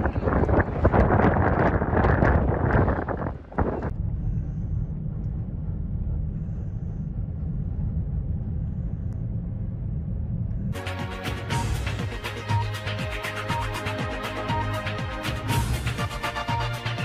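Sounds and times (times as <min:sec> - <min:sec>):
vehicle low rumble: 0:00.0 - 0:12.8.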